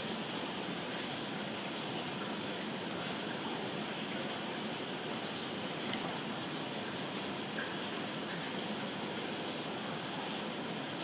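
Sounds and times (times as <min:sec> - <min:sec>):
steady rain hiss: 0:00.0 - 0:11.0
faint ticks of raindrops: 0:00.9 - 0:11.0.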